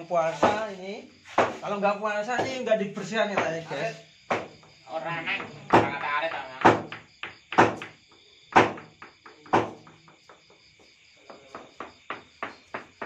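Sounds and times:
crickets chirping: 0:00.0 - 0:13.0
hammer knocking on brick wall: 0:01.3 - 0:01.6, 0:04.3 - 0:04.8, 0:05.4 - 0:10.6, 0:11.3 - 0:13.0.

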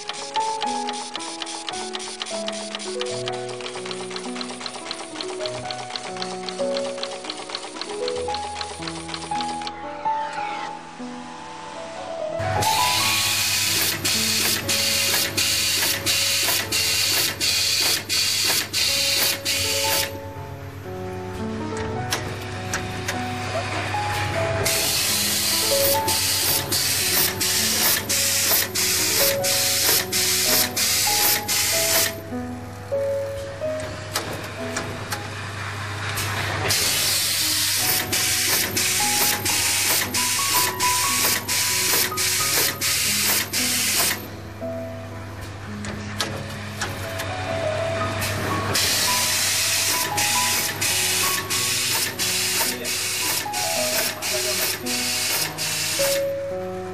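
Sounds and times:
machine hissy mechanical rush: 0:00.0 - 0:05.4, 0:12.6 - 0:20.2, 0:24.6 - 0:32.2, 0:36.1 - 0:44.3, 0:48.2 - 0:56.2
faint background music: 0:00.0 - 0:56.9.

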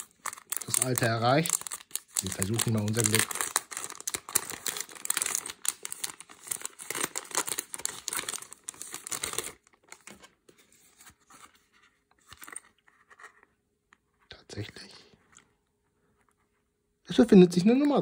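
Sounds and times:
plastic packaging crackling: 0:00.0 - 0:10.3
faint packaging rustles: 0:00.0 - 0:13.6.

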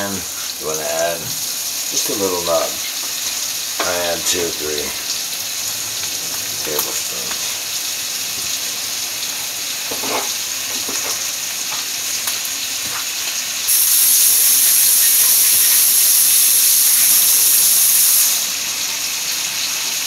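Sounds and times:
steak sizzling in a pan: 0:00.0 - 0:20.0
loud high hiss: 0:13.6 - 0:19.0.

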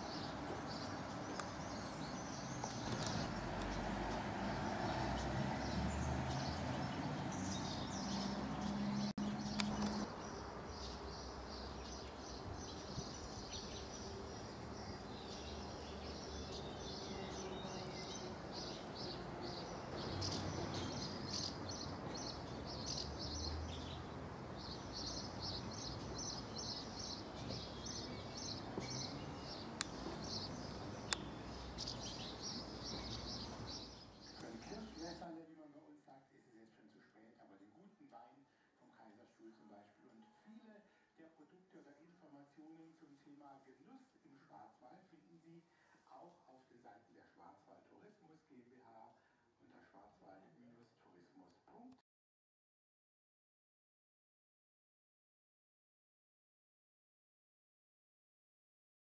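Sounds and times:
small birds chirping: 0:00.0 - 0:35.4
outdoor background noise: 0:00.0 - 0:52.0.

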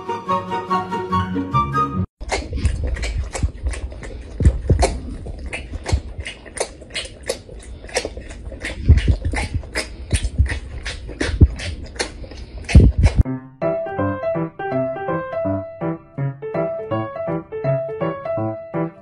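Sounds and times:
music: 0:00.0 - 0:02.1, 0:13.2 - 0:19.0
tiger sucking on a bottle: 0:02.2 - 0:13.2
soft low thumps: 0:02.3 - 0:06.3, 0:08.0 - 0:11.9, 0:12.7 - 0:13.2.

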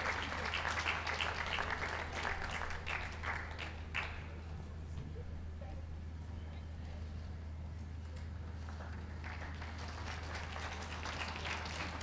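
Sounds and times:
crowd applauding: 0:00.0 - 0:04.3, 0:08.6 - 0:12.0.

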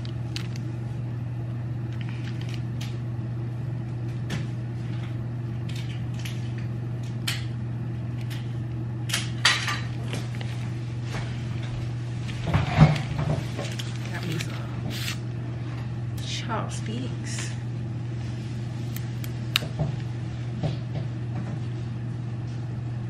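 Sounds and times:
plastic crackles: 0:00.0 - 0:00.7, 0:01.8 - 0:03.0, 0:13.0 - 0:15.2
steady low hum: 0:00.0 - 0:23.0
plastic packet crinkling: 0:01.9 - 0:02.9, 0:13.4 - 0:15.2.

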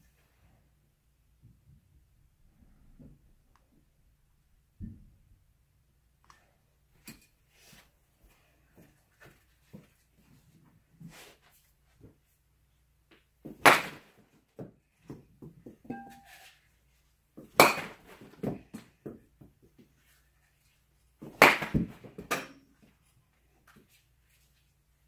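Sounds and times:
ball knocking net and floor: 0:13.4 - 0:16.4, 0:17.4 - 0:19.5, 0:21.2 - 0:22.7
bat hitting ball: 0:13.5 - 0:14.1, 0:17.6 - 0:18.2, 0:21.2 - 0:22.6.

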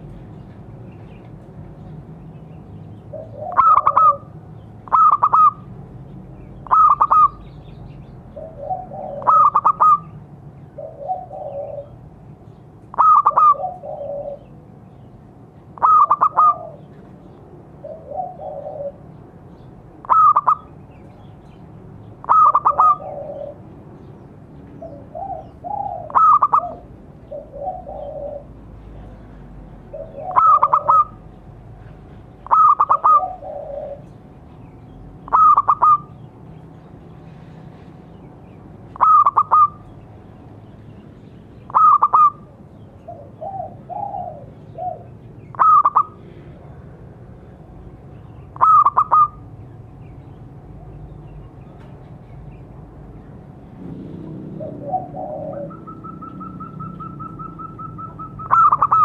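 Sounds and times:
softer lower dove coos: 0:03.1 - 0:04.3, 0:08.4 - 0:10.2, 0:10.8 - 0:12.0, 0:12.9 - 0:14.5, 0:15.8 - 0:17.0, 0:17.8 - 0:19.0, 0:20.0 - 0:20.7, 0:22.2 - 0:23.7, 0:24.8 - 0:28.6, 0:29.9 - 0:31.2, 0:32.4 - 0:34.2, 0:35.3 - 0:36.1, 0:39.0 - 0:39.8, 0:41.7 - 0:46.7, 0:48.6 - 0:49.4, 0:54.3 - 0:59.0
dove cooing: 0:03.1 - 0:05.7, 0:06.6 - 0:07.4, 0:08.3 - 0:12.0, 0:12.9 - 0:14.5, 0:15.8 - 0:17.1, 0:17.8 - 0:19.2, 0:20.0 - 0:20.7, 0:22.2 - 0:23.6, 0:24.8 - 0:28.6, 0:29.9 - 0:31.3, 0:32.4 - 0:34.3, 0:35.3 - 0:36.2, 0:39.0 - 0:39.8, 0:41.7 - 0:46.4, 0:48.5 - 0:49.4, 0:54.4 - 0:59.0.

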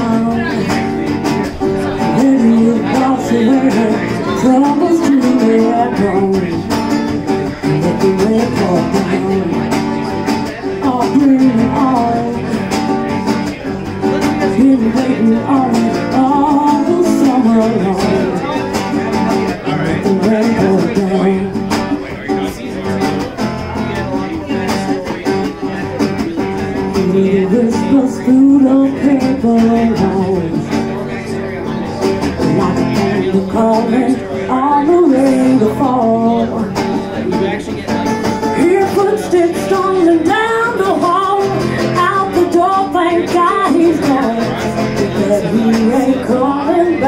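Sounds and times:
woman singing: 0:00.0 - 0:12.8, 0:14.2 - 0:18.6, 0:19.6 - 0:21.6, 0:26.8 - 0:31.0, 0:32.4 - 0:37.4, 0:38.5 - 0:47.0
acoustic guitar strumming: 0:00.0 - 0:47.0.

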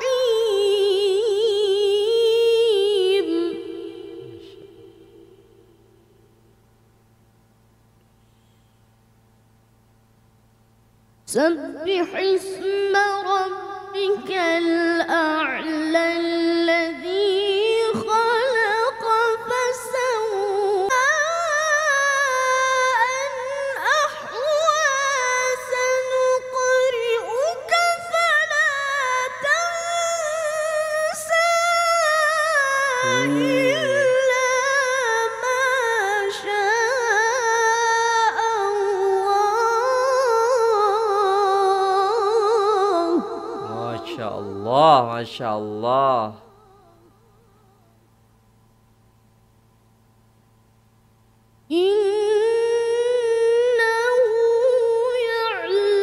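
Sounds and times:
boy chanting recitation: 0:11.3 - 0:29.4, 0:32.7 - 0:41.0, 0:41.8 - 0:47.1
low voice-like sound: 0:33.0 - 0:34.2.

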